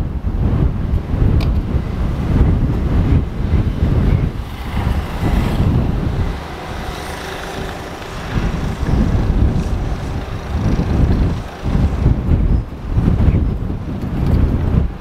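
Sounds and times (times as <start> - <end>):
freight train rumbling: 0.0 - 15.0
wind buffeting microphone: 0.0 - 15.0.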